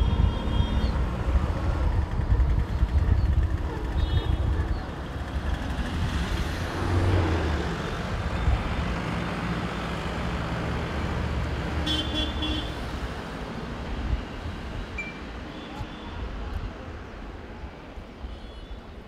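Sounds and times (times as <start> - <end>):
distant engines rumbling: 0.0 - 11.9.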